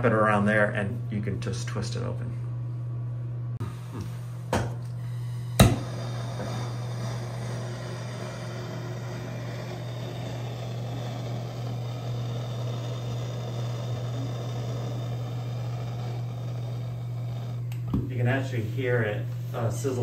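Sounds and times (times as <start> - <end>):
torch flame hissing: 3.6 - 20.0
torch igniter click: 5.6 - 18.0.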